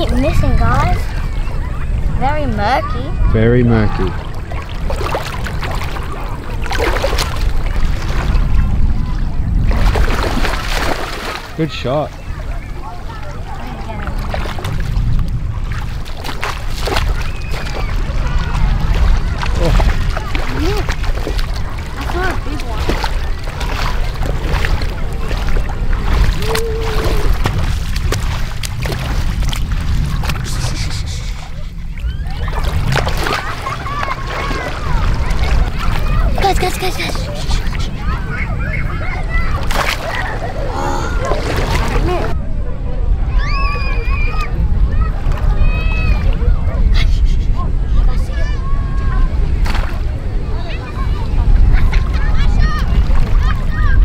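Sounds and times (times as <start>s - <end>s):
steady low rumble: 0.0s - 11.5s, 12.1s - 54.0s
water splashing among rocks: 4.0s - 8.7s, 9.6s - 11.9s, 13.1s - 38.1s, 39.5s - 42.4s, 49.5s - 50.2s.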